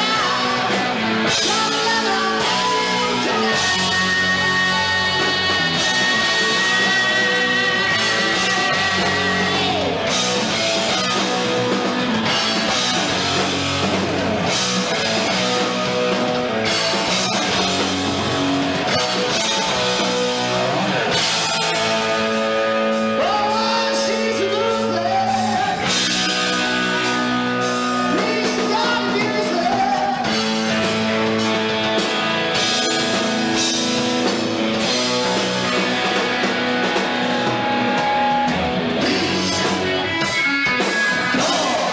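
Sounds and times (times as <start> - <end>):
man singing into a microphone: 0.0 - 9.9, 23.1 - 26.6, 28.0 - 30.4, 39.0 - 40.0, 41.3 - 41.9
drum kit: 0.0 - 41.9
electric guitars: 0.0 - 41.9.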